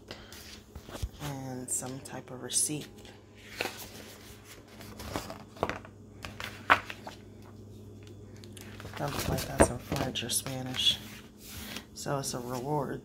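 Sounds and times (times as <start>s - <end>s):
faint steady hum: 0.0s - 13.0s
paper rustling and tapping: 4.8s - 7.2s.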